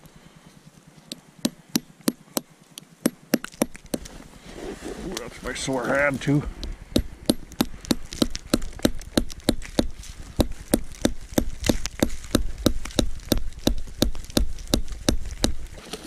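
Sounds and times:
hammer driving nail into wood: 6.9s - 15.7s.

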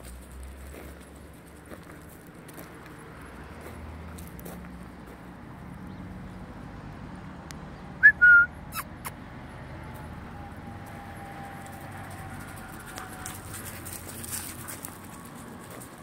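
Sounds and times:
outdoor background noise: 0.0s - 16.0s
person whistling: 8.0s - 8.9s.

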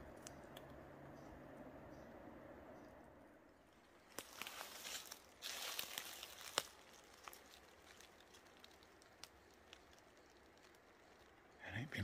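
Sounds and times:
rustling and crinkling: 3.6s - 11.5s.

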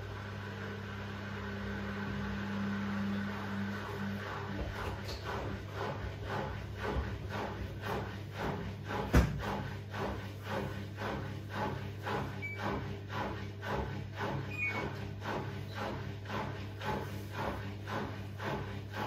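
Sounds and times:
washing machine motor hum: 0.0s - 19.0s
laundry sloshing in drum: 3.3s - 19.0s
washing machine knock: 4.6s - 19.0s.

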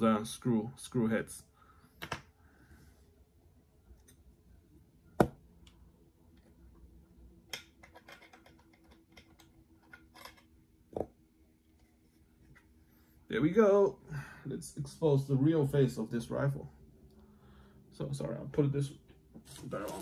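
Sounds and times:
screws being undone with clicks: 7.5s - 10.4s.

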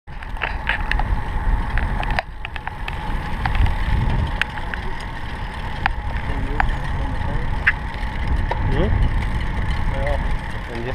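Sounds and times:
bicycle clicks and rattles: 0.1s - 10.9s
wind rumbling on microphone: 0.1s - 10.9s.

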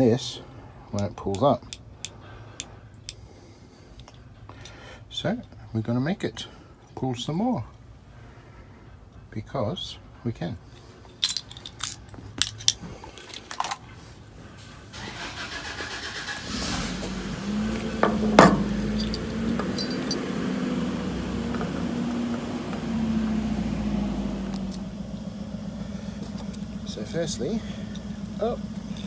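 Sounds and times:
handling clicks and knocks: 10.8s - 13.9s, 17.8s - 20.2s, 27.9s - 29.0s
vehicle engine running: 14.3s - 29.0s.

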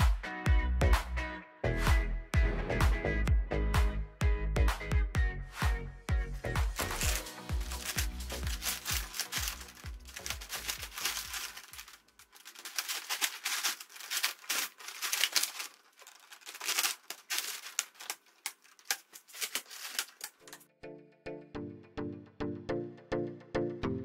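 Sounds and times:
plastic bottles crinkling and clicking: 6.8s - 20.7s.

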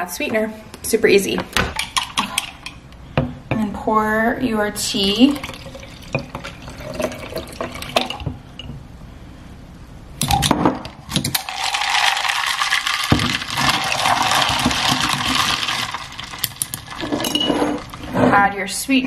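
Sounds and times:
liquid pouring over ice: 5.0s - 8.2s, 11.1s - 18.2s
ice cubes clinking against glass: 10.2s - 18.0s.

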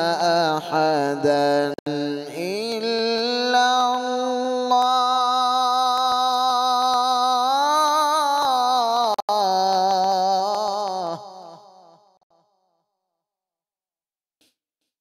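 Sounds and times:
man reciting melodically: 0.0s - 11.8s.

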